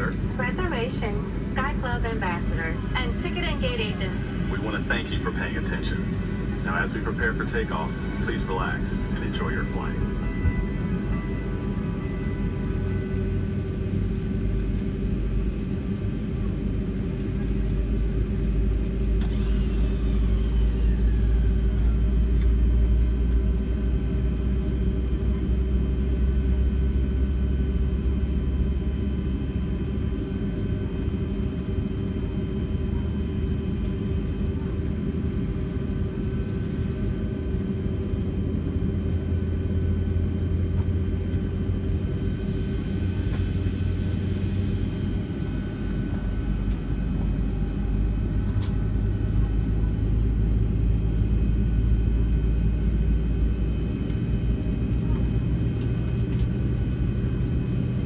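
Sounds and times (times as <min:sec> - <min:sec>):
jet engines rumbling and whining: 0:00.0 - 0:58.0
brief falling whine: 0:19.2 - 0:22.7.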